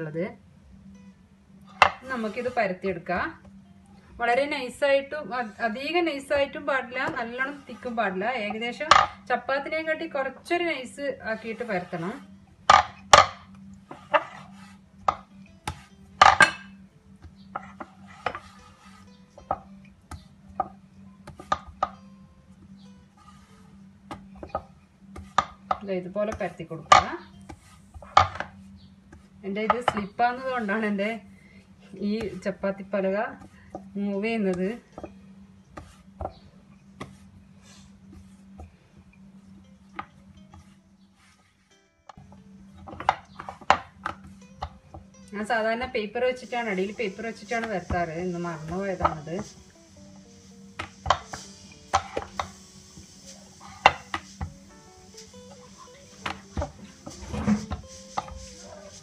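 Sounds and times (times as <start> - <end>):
wooden board knocking on stone: 8.9 - 9.2.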